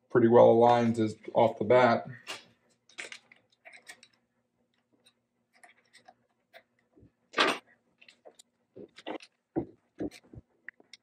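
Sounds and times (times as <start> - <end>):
metal parts clicking and tapping: 2.8 - 6.3.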